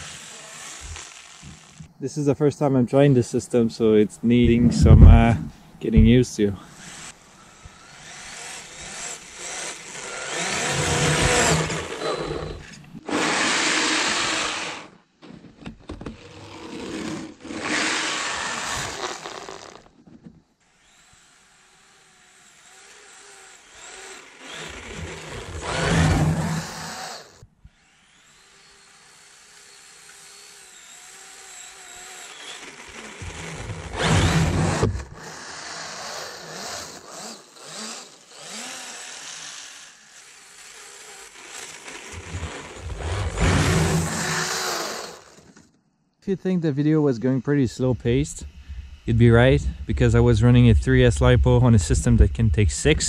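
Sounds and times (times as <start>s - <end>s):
electric motor whining: 0.0s - 2.0s, 4.2s - 15.0s, 16.2s - 19.9s, 20.8s - 45.7s
track churning snow: 10.0s - 14.9s, 24.5s - 27.3s, 41.3s - 45.6s.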